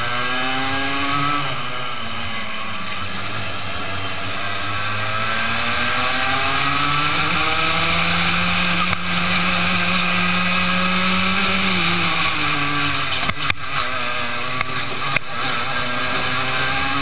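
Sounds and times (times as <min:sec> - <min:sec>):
kart engine at full throttle: 0:00.0 - 0:17.0.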